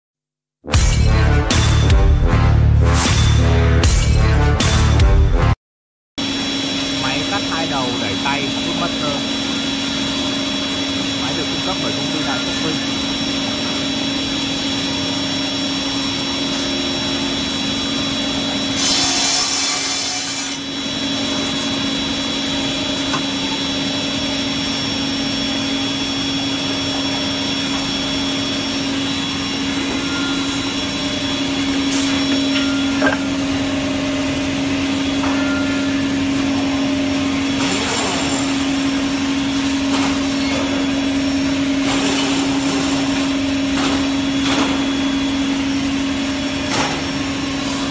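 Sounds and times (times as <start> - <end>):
circular saw motors humming: 6.2 - 47.9
saw blades cutting wood: 6.4 - 47.9.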